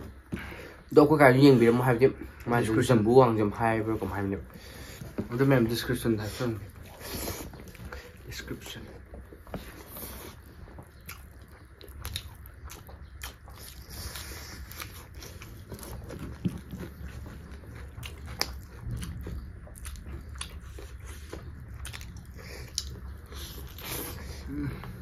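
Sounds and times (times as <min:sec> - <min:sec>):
people chewing food: 0:00.0 - 0:25.0.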